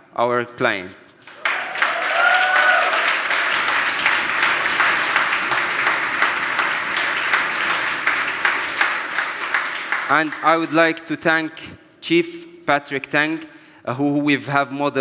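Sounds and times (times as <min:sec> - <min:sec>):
audience applause: 0:01.3 - 0:10.9.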